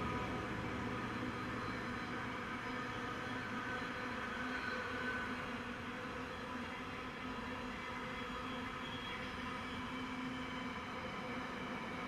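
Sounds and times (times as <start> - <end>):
train wheels rumbling on rails: 0.0 - 5.4.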